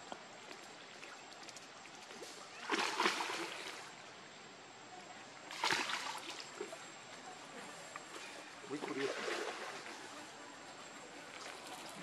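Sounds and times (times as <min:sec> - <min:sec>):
water splashing and sloshing: 0:00.2 - 0:04.1, 0:05.5 - 0:07.3, 0:08.1 - 0:10.2.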